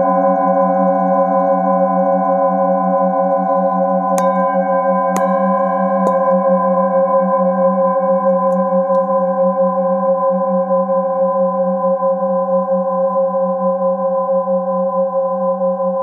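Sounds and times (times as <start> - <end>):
singing bowls humming: 0.0 - 16.0
mallet striking singing bowl: 4.2 - 6.9.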